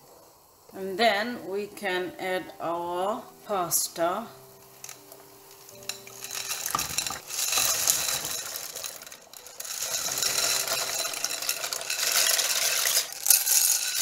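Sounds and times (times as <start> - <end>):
pasta rattling on glass bowl: 4.7 - 14.0
pasta splashing into boiling water: 4.7 - 14.0.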